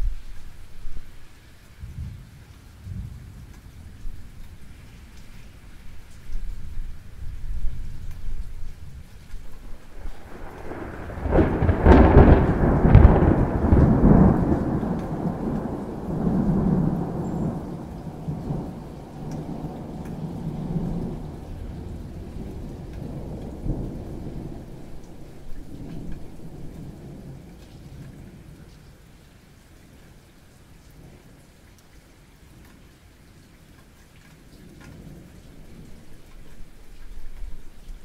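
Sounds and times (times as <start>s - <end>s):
steady rain: 0.0s - 38.0s
thunder cracks and rumble: 9.4s - 27.5s.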